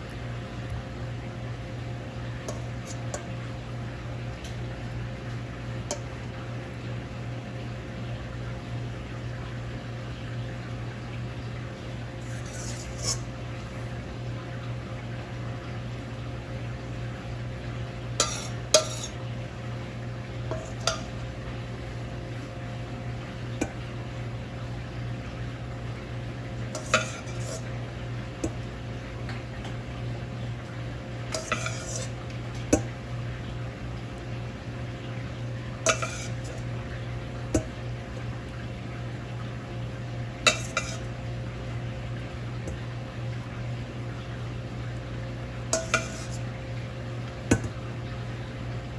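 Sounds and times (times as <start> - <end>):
steady low hum: 0.0 - 48.9
metal utensil clinking on pan: 18.2 - 19.2, 20.5 - 21.1, 26.8 - 27.6, 31.3 - 32.1, 35.9 - 36.6, 40.5 - 41.1, 45.8 - 46.4.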